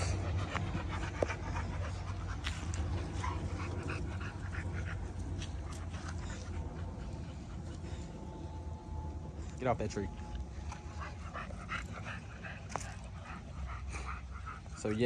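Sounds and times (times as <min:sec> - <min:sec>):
low rumble: 0:00.0 - 0:14.8
dogs panting: 0:00.0 - 0:15.0.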